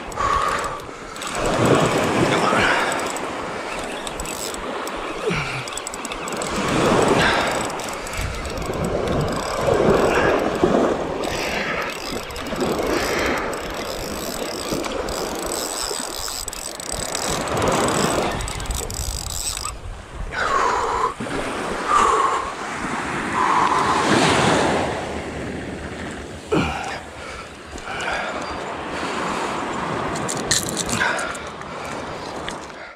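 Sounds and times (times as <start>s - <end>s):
surf washing up the beach: 0.0s - 3.7s, 6.5s - 11.8s, 19.8s - 27.4s
fishing reel gears cranking: 0.0s - 19.8s, 30.0s - 32.1s
wind on the microphone: 6.3s - 26.7s.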